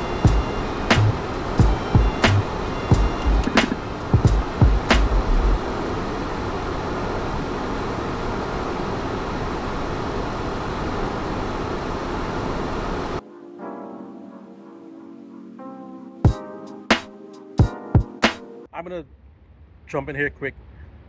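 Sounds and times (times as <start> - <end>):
music: 0.0 - 5.6, 13.2 - 18.7
jet cockpit engine and airflow noise: 0.0 - 13.3.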